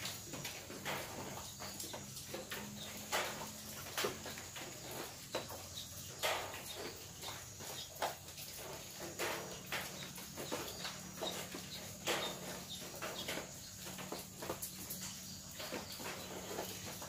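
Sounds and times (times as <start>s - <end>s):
rain dripping on metal roof: 0.0s - 17.0s.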